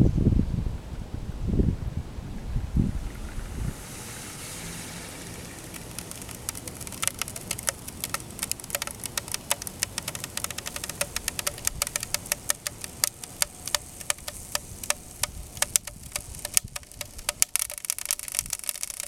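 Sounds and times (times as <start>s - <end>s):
wind rumble on microphone: 0.0s - 5.3s
high hiss: 2.8s - 18.9s
plastic bottle crackling clicks: 5.2s - 19.0s.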